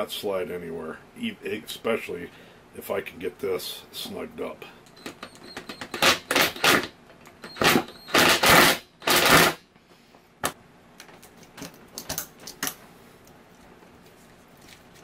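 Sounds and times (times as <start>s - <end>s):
cordless driver running: 7.5s - 9.6s.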